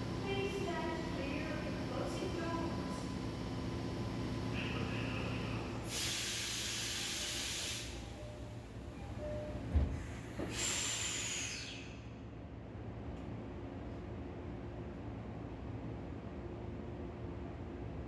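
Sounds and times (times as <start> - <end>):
train low rumble: 0.0 - 18.0
loud hissing bursts: 5.9 - 8.0.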